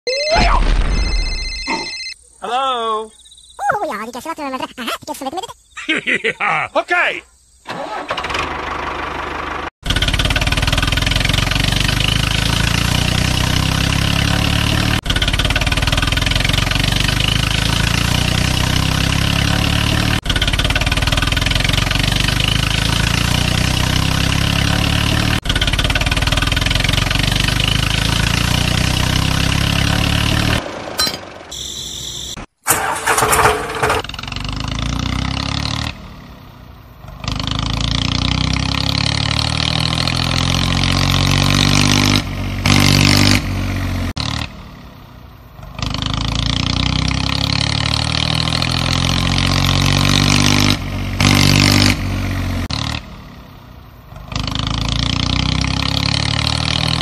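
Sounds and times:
engine running steadily: 0:07.8 - 0:13.6, 0:24.8 - 0:28.8
short different noises: 0:31.5 - 0:34.1.

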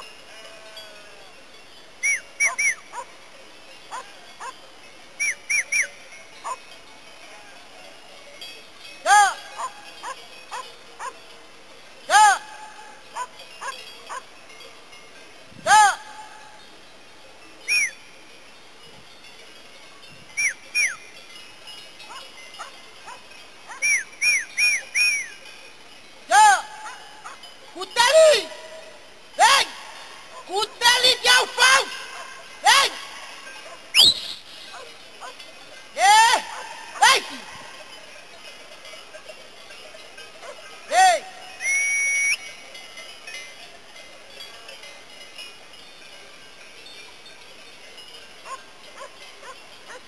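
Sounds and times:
high whistled calls: 0:02.0 - 0:03.0, 0:05.2 - 0:06.1, 0:17.6 - 0:18.1, 0:20.3 - 0:21.2, 0:23.7 - 0:25.5, 0:31.6 - 0:34.9, 0:41.1 - 0:42.6.

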